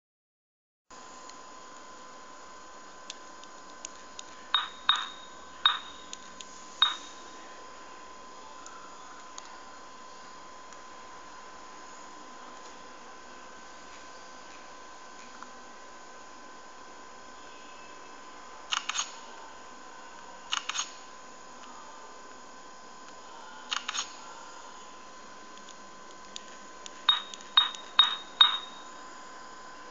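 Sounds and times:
steady high whine: 0.9 - 29.9
steady high-pitched tone: 4.4 - 14.3, 26.7 - 29.9
phone keypad beeps: 4.6 - 6.1, 6.8 - 7.1, 27.1 - 28.9.

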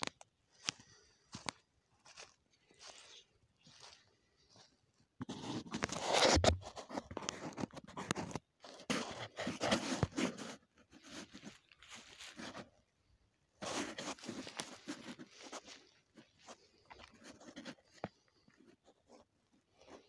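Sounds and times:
footsteps crunching on dry leaves: 0.8 - 4.8, 11.0 - 12.8, 13.6 - 17.1.

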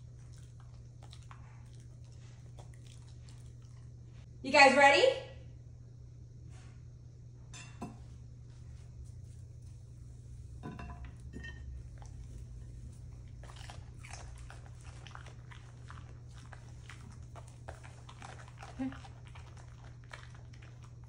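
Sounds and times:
dogs crunching and chewing: 0.0 - 4.2, 11.2 - 21.0.

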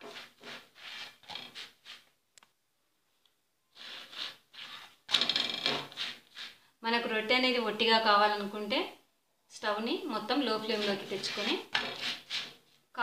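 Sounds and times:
hand rubbing roti on griddle: 0.0 - 2.1, 3.7 - 6.6, 10.4 - 12.7.

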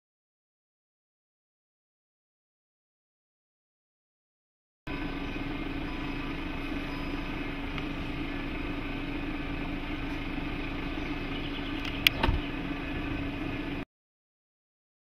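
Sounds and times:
power tailgate closing: 11.6 - 12.6
tailgate latch click and thump: 11.8 - 12.5.

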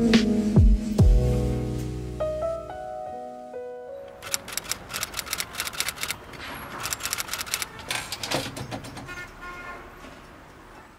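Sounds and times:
keyboard keystroke clicks: 4.2 - 6.2.

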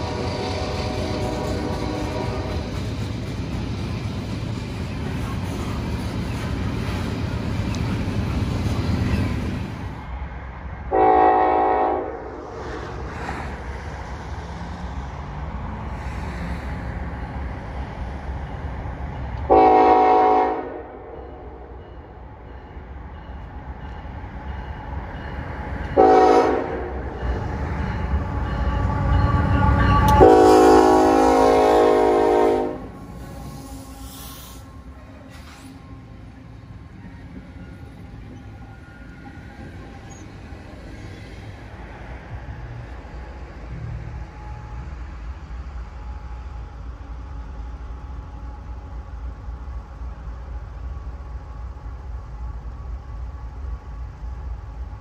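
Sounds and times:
locomotive air horn blasts: 0.0 - 2.7, 10.9 - 12.6, 19.5 - 21.2, 26.0 - 27.1, 28.8 - 35.0
diesel locomotive rumble: 0.0 - 55.0.

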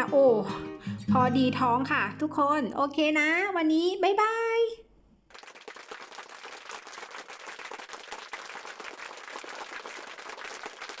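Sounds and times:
crowd applauding: 5.3 - 11.0.

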